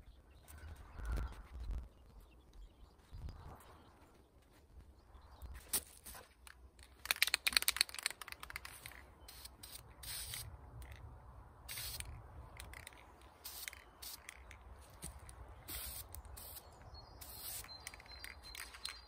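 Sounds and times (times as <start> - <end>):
spray can rattling clicks: 7.0 - 11.0, 11.7 - 16.6, 17.2 - 19.0
aerosol spray hissing: 15.7 - 17.7.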